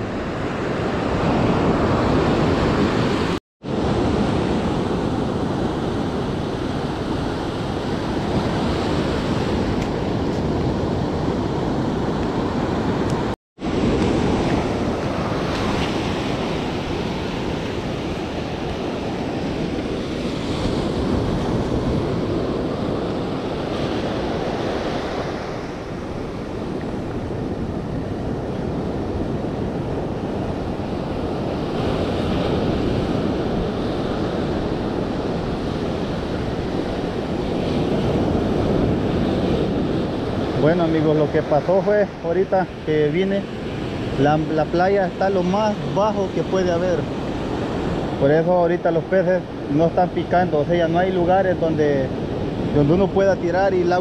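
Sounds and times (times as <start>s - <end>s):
ocean surf washing on sand: 0.0s - 54.0s.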